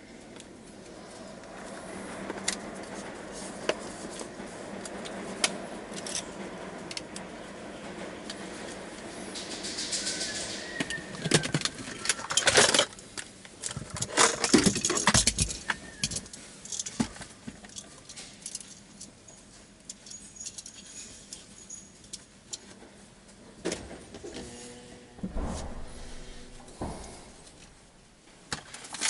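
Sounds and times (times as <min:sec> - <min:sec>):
loud knock: 0:25.2 - 0:28.2.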